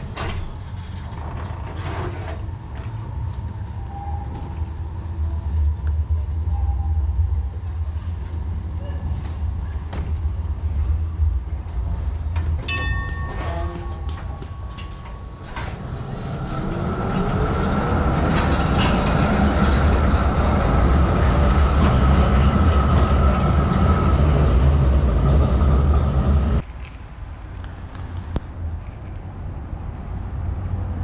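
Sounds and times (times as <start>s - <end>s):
tram wheels rumbling: 0.0s - 26.7s
street sound: 0.0s - 31.0s
steady high tone: 12.7s - 17.2s.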